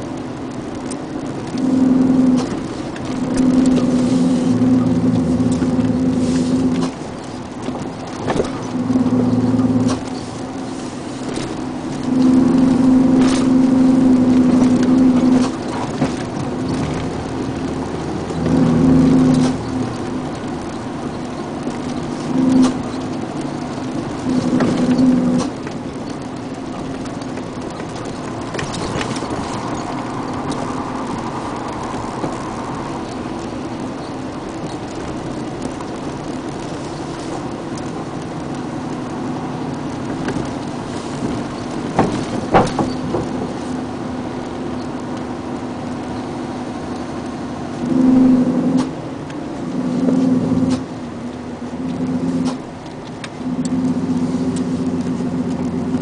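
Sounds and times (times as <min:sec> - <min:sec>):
vehicle engine and road noise: 0:00.0 - 0:56.0.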